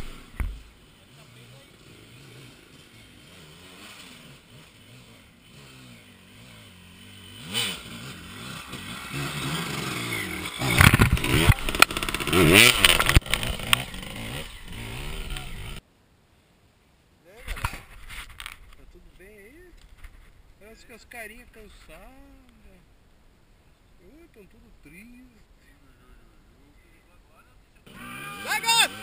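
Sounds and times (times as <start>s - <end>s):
dirt bike engines revving: 0.0s - 15.8s, 27.8s - 29.0s.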